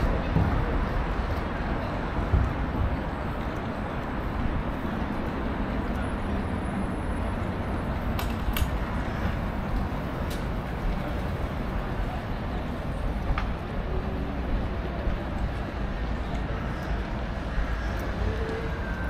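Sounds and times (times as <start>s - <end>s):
low city rumble and hiss: 0.0s - 19.0s.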